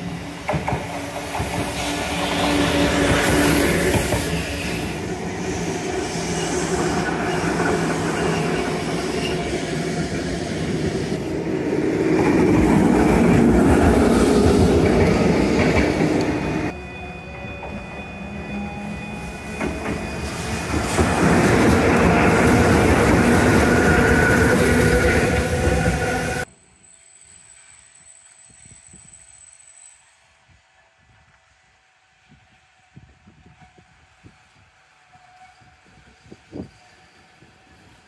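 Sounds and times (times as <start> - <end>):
tram cars rumbling past: 0.0 - 26.5.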